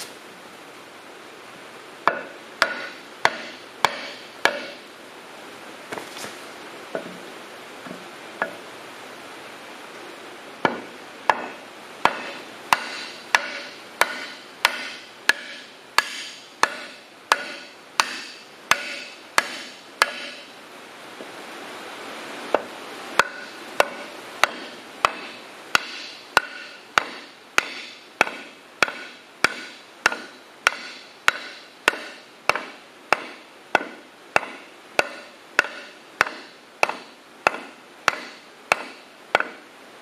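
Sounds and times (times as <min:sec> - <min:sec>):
hammer knocking on wood: 0:07.0 - 0:07.2.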